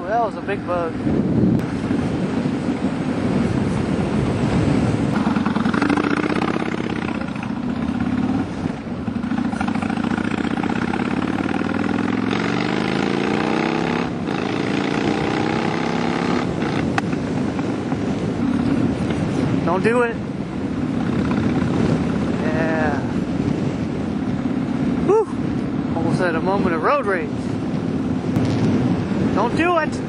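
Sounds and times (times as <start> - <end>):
motorcycle engine running: 1.6 - 25.0.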